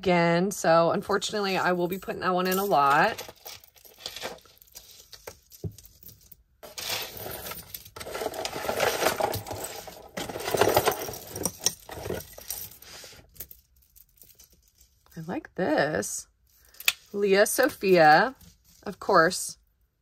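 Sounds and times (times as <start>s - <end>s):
metal jewelry clinking and jangling: 1.5s - 15.2s.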